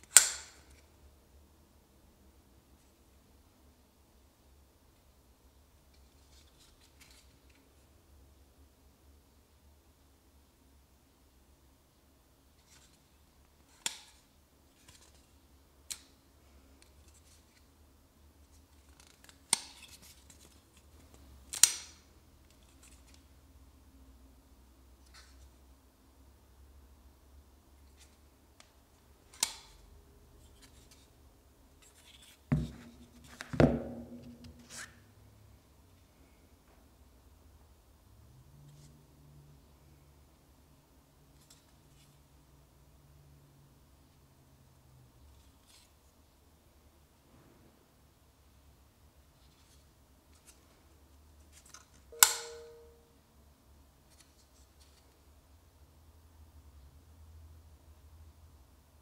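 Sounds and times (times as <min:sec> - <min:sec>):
knife blade closing click: 0:52.2 - 0:52.9.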